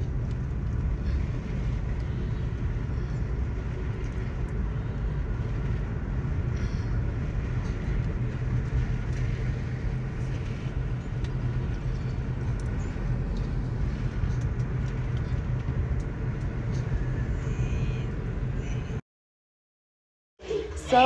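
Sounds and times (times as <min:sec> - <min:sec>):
car engine and tyre rumble: 0:00.0 - 0:19.0.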